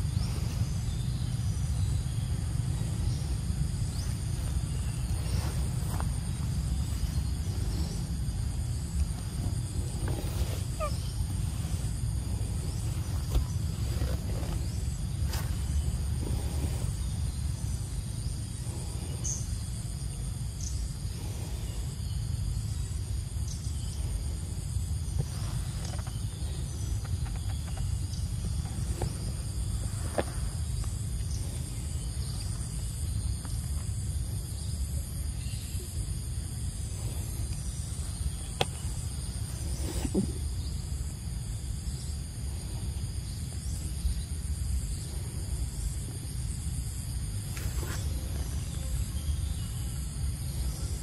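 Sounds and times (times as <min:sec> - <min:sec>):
constant high whine: 0:00.0 - 0:51.0
insects chirring: 0:00.0 - 0:51.0
steady low rumble: 0:00.0 - 0:51.0
young monkey squeaky call: 0:10.7 - 0:11.3.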